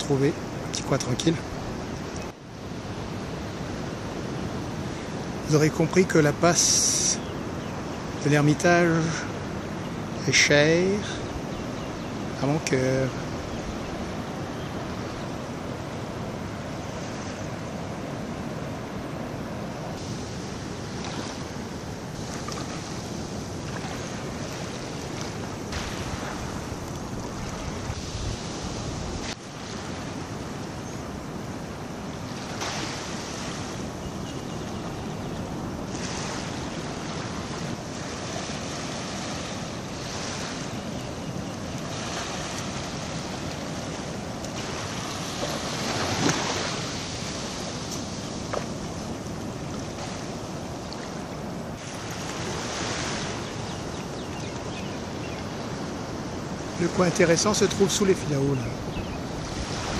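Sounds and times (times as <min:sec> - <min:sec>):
small waves lapping at shore: 0:00.0 - 0:59.9
wind buffeting microphone: 0:13.2 - 0:56.9, 0:58.4 - 0:59.9.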